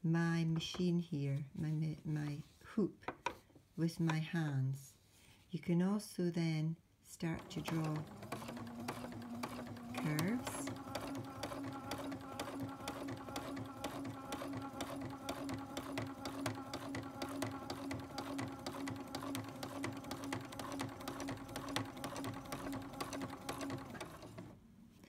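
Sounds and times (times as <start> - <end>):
sewing machine stitching: 7.2 - 24.6.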